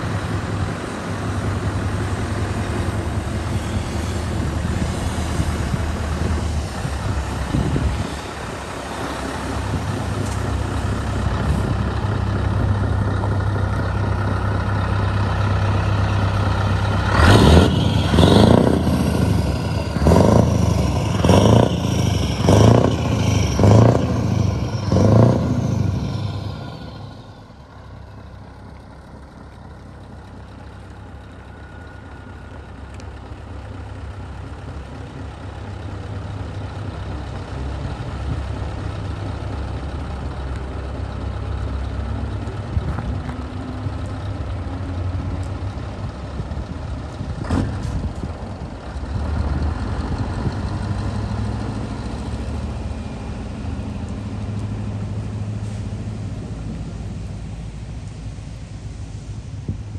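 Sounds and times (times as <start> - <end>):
loud engine surges: 0.0 - 35.8
diesel truck engine running: 0.0 - 59.9.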